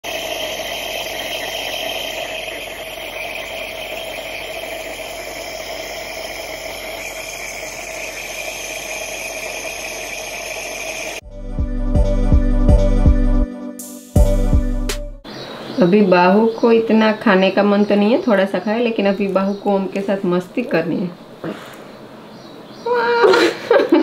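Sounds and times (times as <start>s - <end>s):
nebulizer compressor humming: 0.0s - 11.3s.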